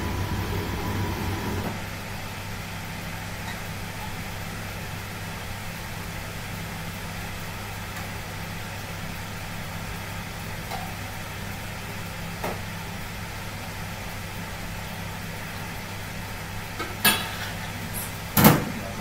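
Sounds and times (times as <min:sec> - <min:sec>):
extraction hood hum: 0:00.0 - 0:02.4
kitchen wok range roaring: 0:00.0 - 0:19.0.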